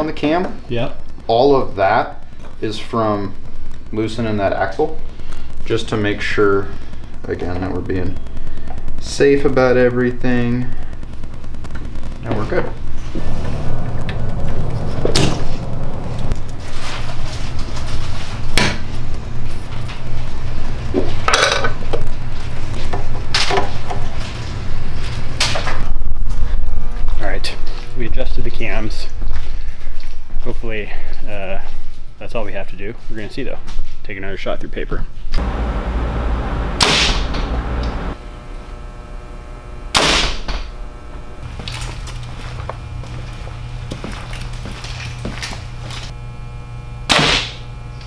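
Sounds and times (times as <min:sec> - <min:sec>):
steady low hum: 0:00.0 - 0:33.0, 0:35.2 - 0:48.0.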